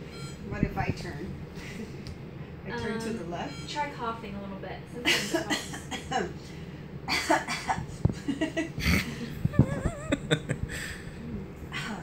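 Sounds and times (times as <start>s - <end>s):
woman coughing: 5.1s - 6.3s, 7.1s - 7.9s.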